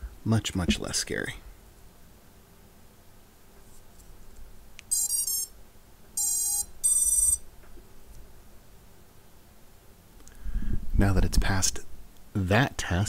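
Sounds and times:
electronic beeps: 4.9s - 5.5s, 6.2s - 7.4s.

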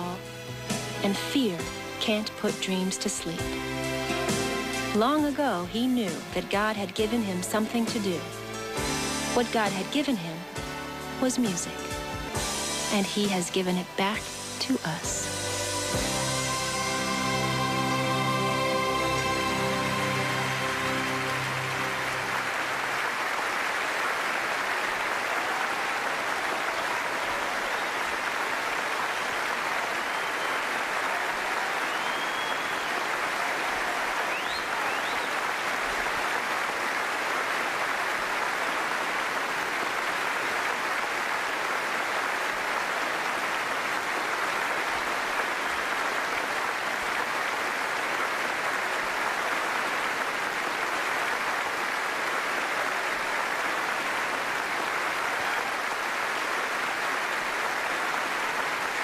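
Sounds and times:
music: 0.0s - 23.6s
audience applauding: 6.1s - 59.0s.

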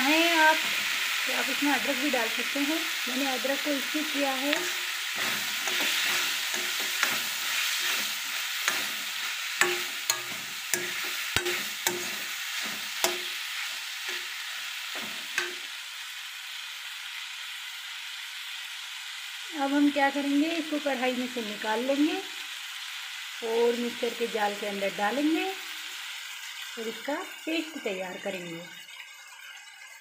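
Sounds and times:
vegetables sizzling in oil: 0.0s - 30.0s
metal spoon scraping pan: 4.3s - 15.7s.

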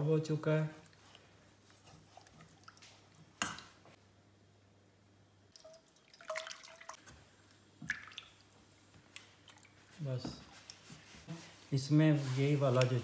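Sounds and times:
water sloshing in saucepan: 0.8s - 4.0s, 5.5s - 11.7s.

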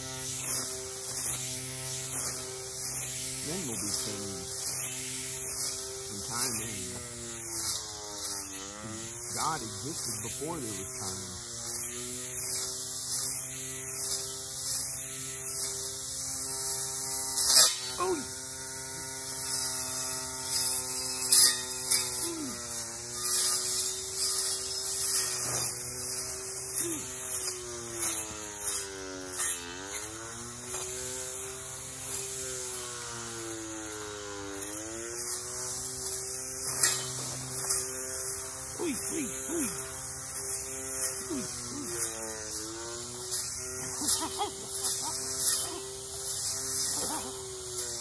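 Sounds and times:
electric weed eater whining: 0.0s - 48.0s.

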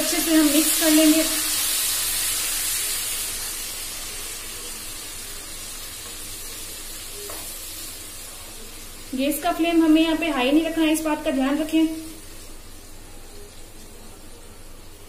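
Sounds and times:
beans sizzling in hot oil: 0.0s - 15.0s.

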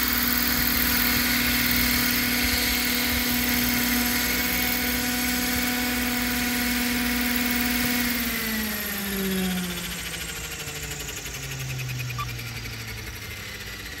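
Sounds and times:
model helicopter rotors whining: 0.0s - 14.0s.

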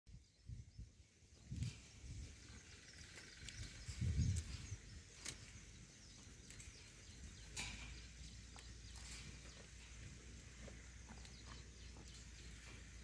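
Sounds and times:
faint outdoor ambience: 0.1s - 13.0s.

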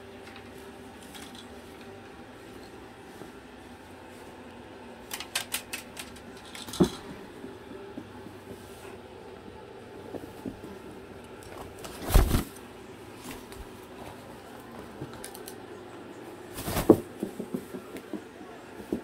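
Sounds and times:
fabric rustling thumps: 11.8s - 12.6s, 16.5s - 18.2s.

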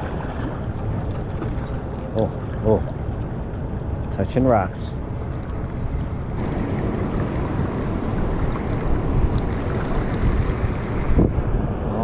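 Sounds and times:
wind buffeting microphone: 0.0s - 12.0s
water rushing through spillway: 6.4s - 11.3s.

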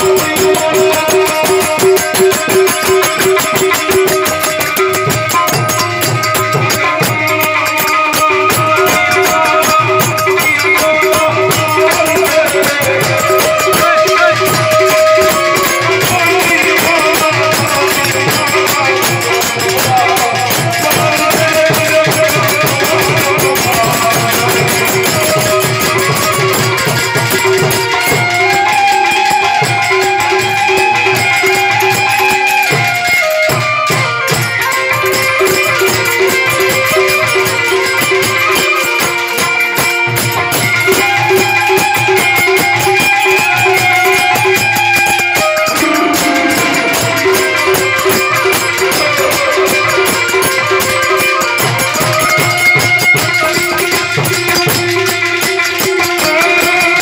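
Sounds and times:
man singing: 0.0s - 32.9s, 33.5s - 57.0s
harmonium chords: 0.0s - 57.0s
jingling hand percussion: 0.0s - 57.0s
tabla drumming: 0.0s - 57.0s.

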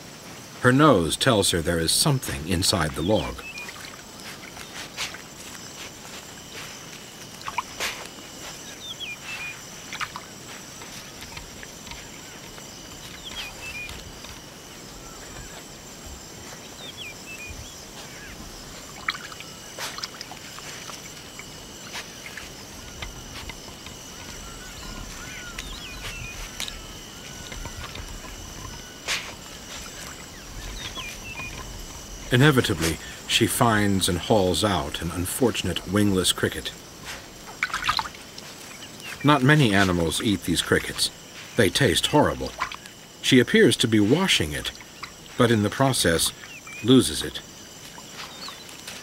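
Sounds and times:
insects trilling: 0.0s - 49.0s
animal splashing in water: 3.4s - 32.2s, 37.0s - 38.8s, 42.5s - 42.9s.

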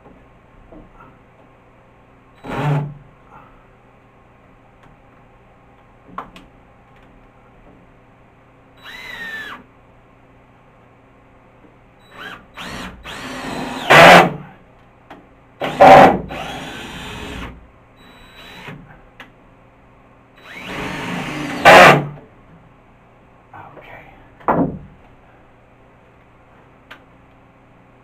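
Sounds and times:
power drill driving screws: 8.8s - 9.6s, 12.1s - 14.4s, 15.6s - 18.8s, 20.4s - 22.2s.

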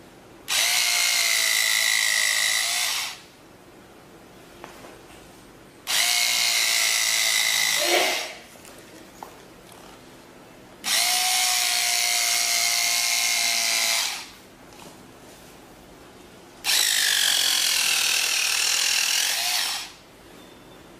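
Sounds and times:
electric fabric cutter whining: 0.5s - 3.2s, 5.9s - 8.4s, 10.8s - 14.4s, 16.6s - 20.0s.

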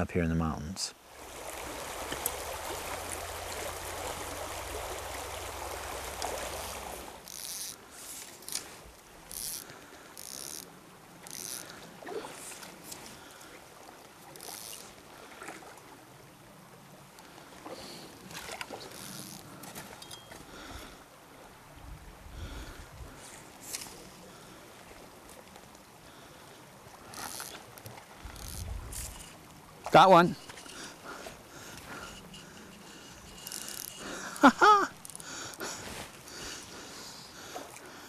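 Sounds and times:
stream running over rocks: 0.1s - 38.0s.

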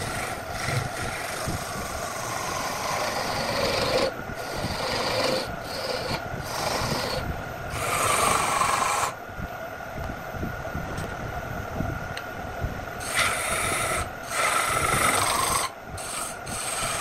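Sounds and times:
chisel scraping wood on lathe: 0.0s - 9.1s, 13.0s - 17.0s
lathe motor hum: 0.0s - 9.2s, 13.0s - 17.0s.

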